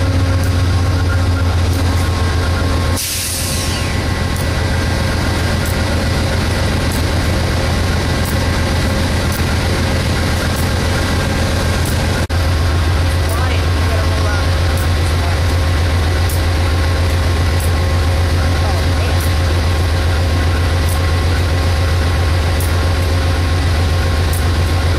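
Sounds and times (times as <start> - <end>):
diesel locomotive engine droning: 0.0 - 24.9
loud air hiss: 3.0 - 4.1.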